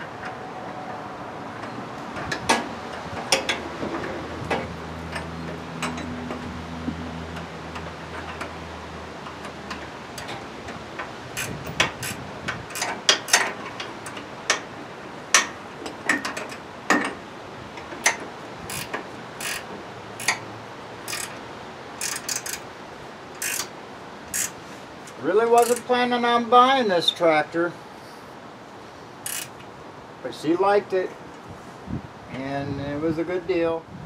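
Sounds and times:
metallic clicks of hand tools: 11.4s - 14.6s, 18.0s - 20.4s, 21.1s - 21.4s, 22.0s - 22.6s, 23.4s - 23.7s, 24.3s - 25.9s, 29.2s - 29.7s.

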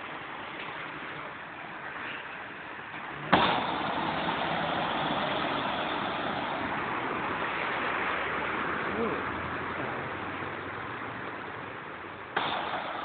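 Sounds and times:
car driving through floodwater: 0.0s - 13.0s
tyres spraying water: 0.0s - 13.0s.

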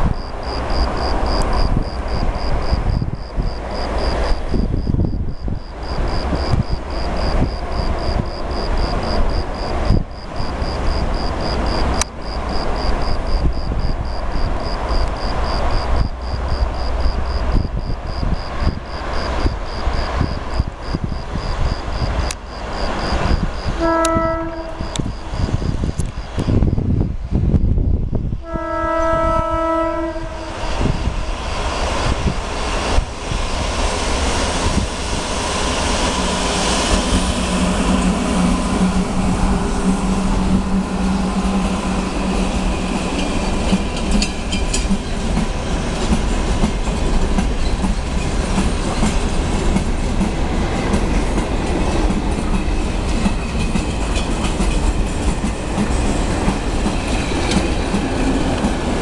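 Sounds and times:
freight train rumbling on rails: 0.0s - 59.0s
locomotive hum: 0.0s - 59.0s
train horn blast: 23.7s - 25.1s, 28.4s - 30.7s, 37.3s - 43.5s.

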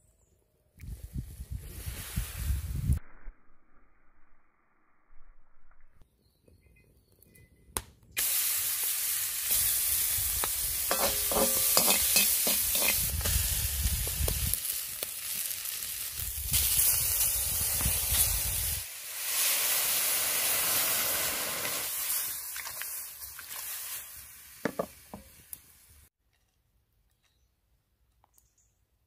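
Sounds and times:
vegetables sizzling in a wok: 8.2s - 26.1s
utensil clinking against pan: 10.9s - 13.0s
stirring in a wok: 10.9s - 13.1s.

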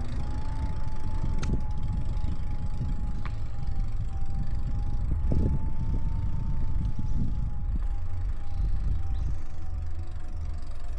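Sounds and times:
electric motor whine: 0.0s - 10.9s
wind rumble on microphone: 0.0s - 10.9s.

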